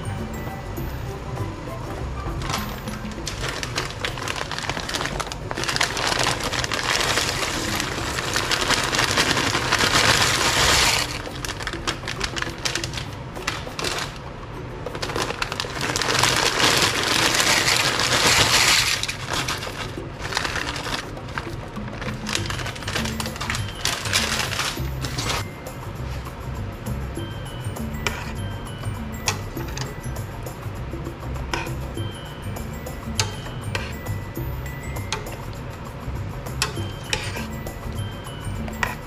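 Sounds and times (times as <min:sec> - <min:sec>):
dry pasta rattling out of bag: 0:02.5 - 0:14.2, 0:14.9 - 0:25.4.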